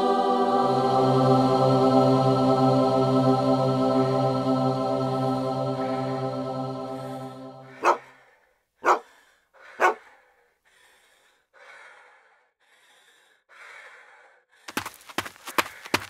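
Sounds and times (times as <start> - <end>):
person breathing heavily: 6.9 - 16.0
person gasping: 7.1 - 16.0.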